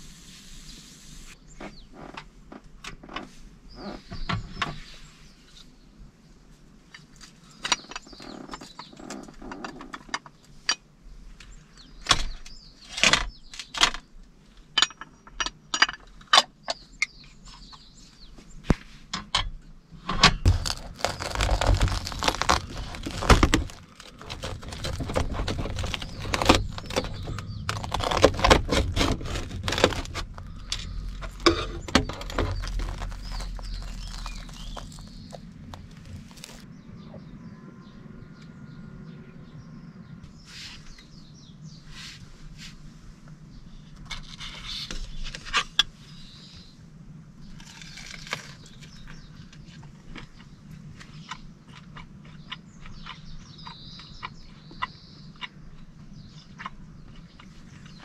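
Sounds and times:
toasted sandwich crackling: 0:20.5 - 0:36.7.

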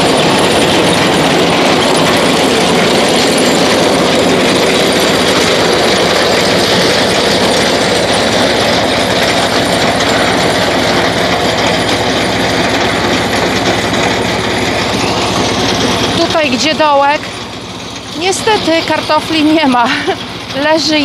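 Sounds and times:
potato digger conveyor rattling: 0:00.0 - 0:21.0
tractor engine running: 0:00.0 - 0:21.0.

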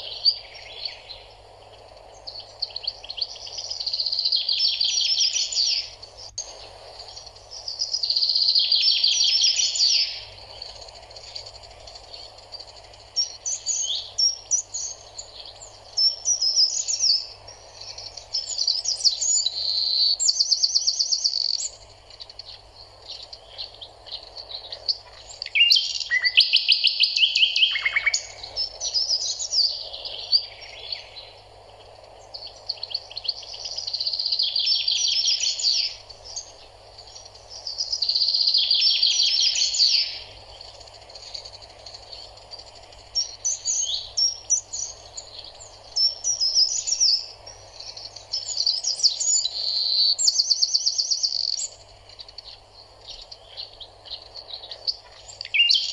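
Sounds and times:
faint background noise: 0:00.0 - 0:55.9
songbirds chirping and trilling: 0:00.0 - 0:55.9.

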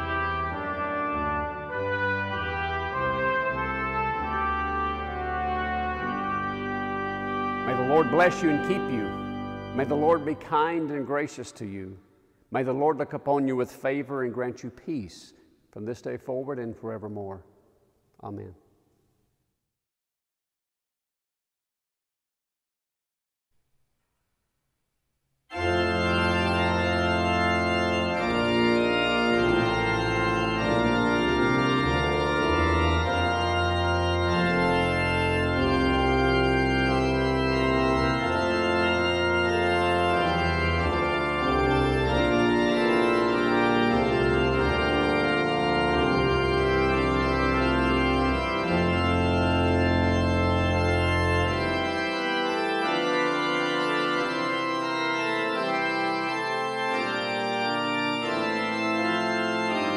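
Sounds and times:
low organ pedal bass notes: 0:00.0 - 0:12.0, 0:25.5 - 0:59.9
pipe organ chords: 0:00.0 - 0:17.5, 0:25.5 - 0:59.9.

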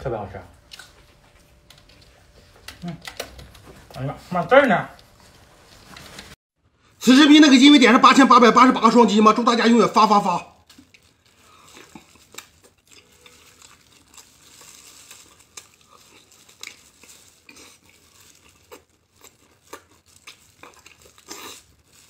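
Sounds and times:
plastic gloves crinkling: 0:09.4 - 0:22.0
chewing wet meat: 0:10.7 - 0:22.0.

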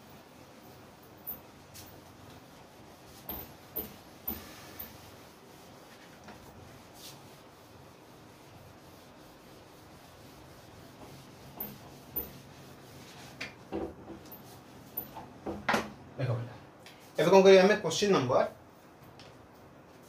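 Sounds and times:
eraser rubbing on whiteboard: 0:01.5 - 0:13.4.

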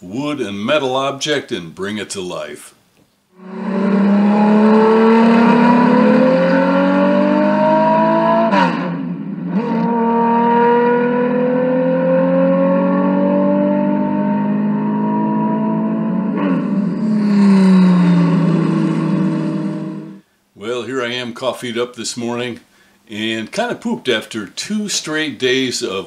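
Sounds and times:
racing car engine at high revs: 0:03.4 - 0:20.2.

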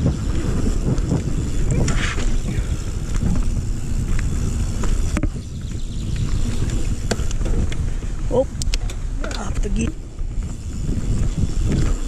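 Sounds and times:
bike clicks: 0:00.0 - 0:12.0
tyre noise on dirt: 0:00.0 - 0:12.0
wind buffeting microphone: 0:00.0 - 0:12.0.

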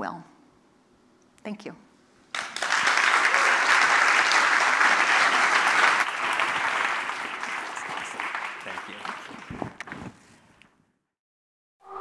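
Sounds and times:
audience applauding: 0:02.3 - 0:09.9.

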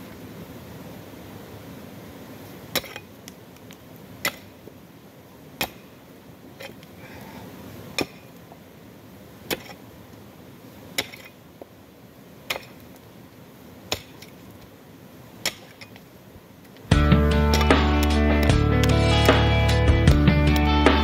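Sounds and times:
pick-axe striking rocky dirt: 0:02.7 - 0:03.1, 0:04.2 - 0:04.6, 0:05.6 - 0:05.9, 0:08.0 - 0:08.3, 0:09.5 - 0:09.8, 0:11.0 - 0:11.4, 0:12.5 - 0:12.8, 0:13.9 - 0:14.4, 0:15.4 - 0:16.0, 0:17.5 - 0:19.5.

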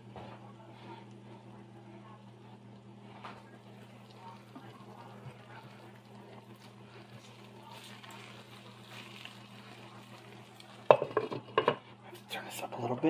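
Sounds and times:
low room hum: 0:00.0 - 0:13.0
food sizzling in skillet: 0:03.7 - 0:11.3.

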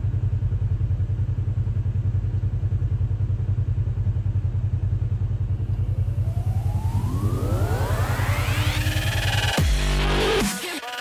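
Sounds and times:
vehicle engine idling: 0:00.0 - 0:10.2
rising electronic sweep: 0:05.6 - 0:10.6
music: 0:08.0 - 0:11.0.

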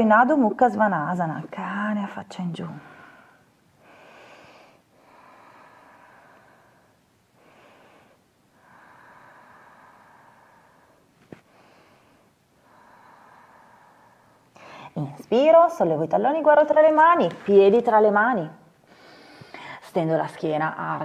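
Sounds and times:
woman breathing slowly: 0:02.8 - 0:15.0, 0:18.8 - 0:19.8.

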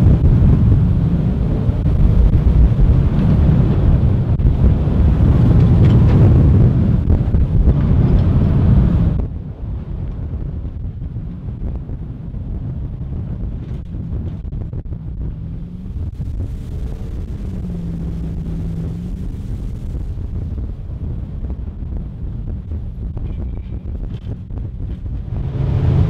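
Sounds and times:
jet boat running: 0:00.0 - 0:26.0
wind buffeting microphone: 0:00.0 - 0:26.0
faint engine tone: 0:13.9 - 0:26.0.

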